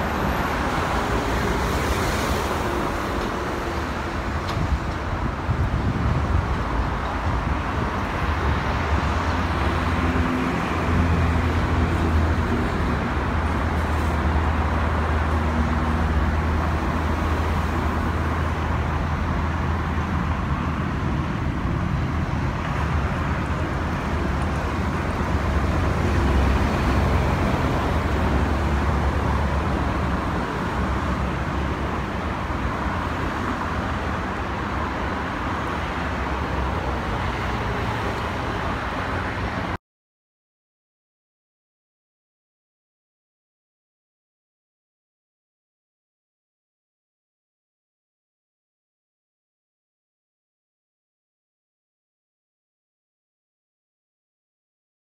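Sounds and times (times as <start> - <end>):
airliner engines rumbling: 0.0 - 39.8.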